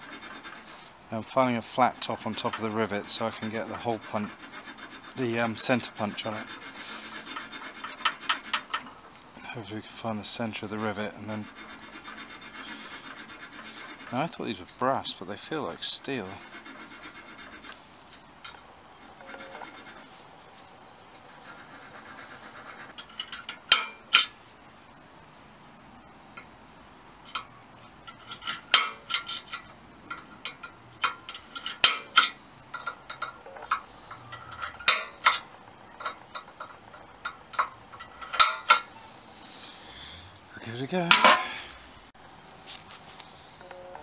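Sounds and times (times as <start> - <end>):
sharp metallic clicks: 27.3 - 38.9.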